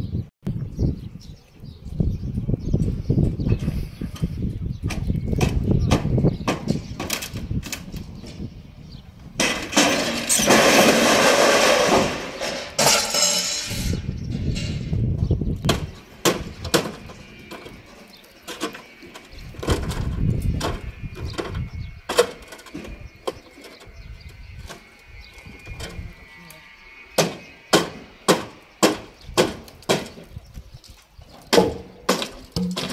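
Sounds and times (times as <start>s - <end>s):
crash of falling boards: 9.4s - 13.9s
wooden knocks and clatter: 31.3s - 32.9s.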